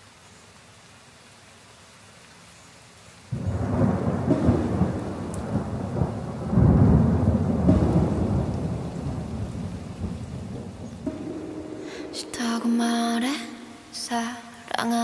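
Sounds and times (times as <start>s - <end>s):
rain hiss: 0.0s - 15.0s
thunder crash and rumble: 3.4s - 12.4s.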